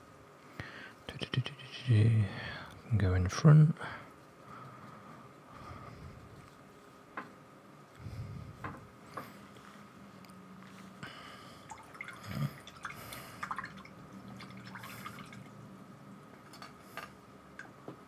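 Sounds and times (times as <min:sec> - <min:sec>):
paintbrush rinsed in water: 0:11.7 - 0:15.6.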